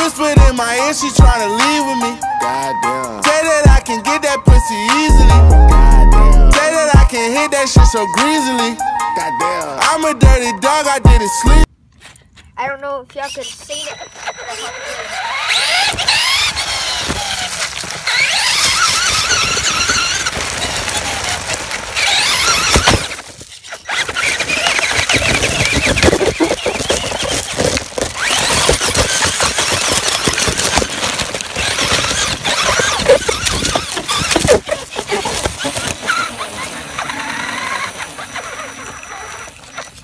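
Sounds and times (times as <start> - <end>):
wheels crunching over rough ground: 12.2 - 40.0
toy car motor whining: 13.2 - 40.0.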